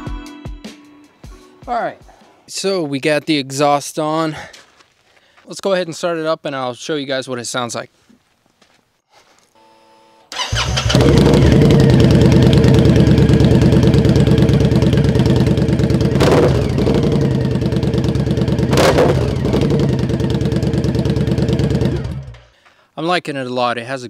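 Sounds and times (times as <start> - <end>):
motorcycle engine idling: 10.4 - 22.5.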